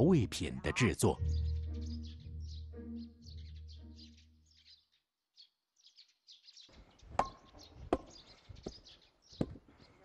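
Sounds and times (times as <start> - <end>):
low background music: 0.0 - 4.8
small birds chirping: 0.0 - 10.0.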